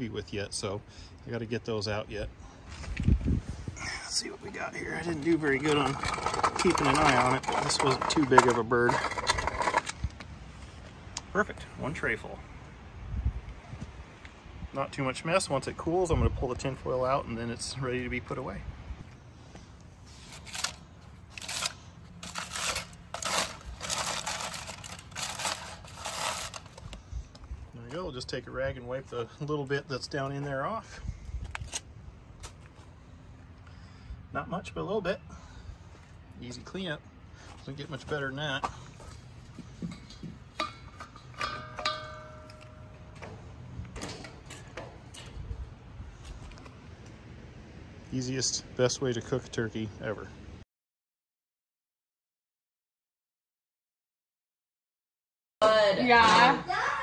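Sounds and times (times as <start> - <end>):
aluminium foil crinkling: 20.2 - 26.9
short metallic ring: 40.6 - 43.2.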